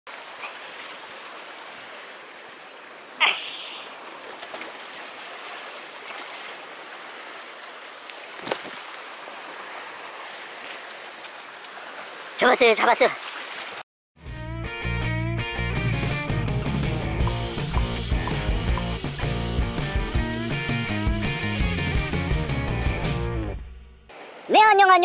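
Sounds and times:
waves washing against breakwater: 0.1s - 13.8s.

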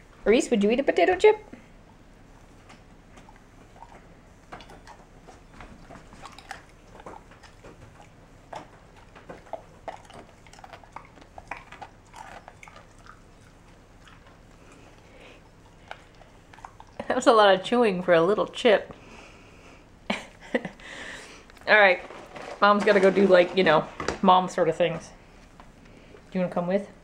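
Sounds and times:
dog chewing crunches: 2.6s - 17.7s.

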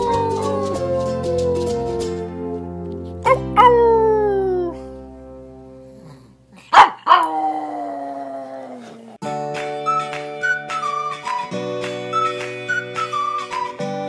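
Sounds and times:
dog howling: 0.0s - 2.5s, 6.8s - 9.2s
background music: 0.0s - 6.4s, 9.2s - 14.0s
dog barking: 6.6s - 7.3s.

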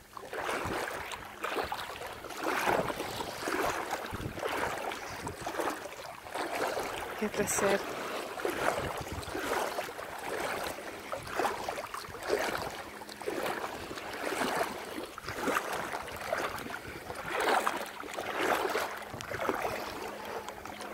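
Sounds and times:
feet wading through water: 0.0s - 20.9s.

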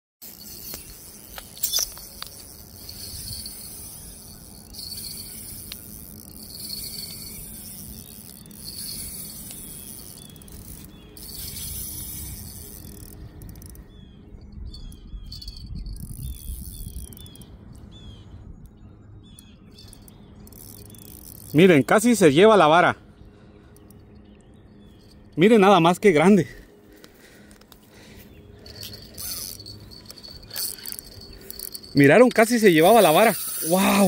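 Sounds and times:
pulsing insect hiss: 0.2s - 13.8s, 27.2s - 34.0s
bird chirping: 0.3s - 25.9s
wind rumbling on microphone: 0.4s - 20.4s.

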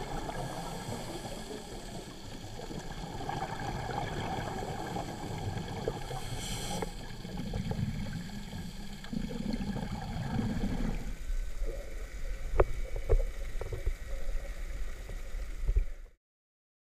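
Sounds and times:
exhaled bubbles rumbling: 0.0s - 16.1s
scuba regulator hissing: 6.2s - 7.0s.

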